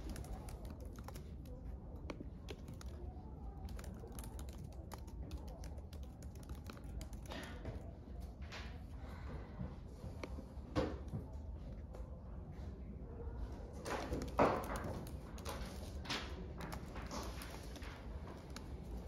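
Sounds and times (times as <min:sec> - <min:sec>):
laptop keyboard typing: 0:00.0 - 0:08.0, 0:13.9 - 0:19.0.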